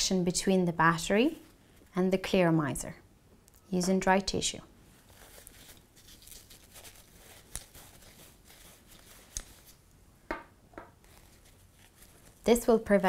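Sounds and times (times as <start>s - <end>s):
tissue rustling on metal: 4.8s - 9.8s, 11.0s - 13.0s.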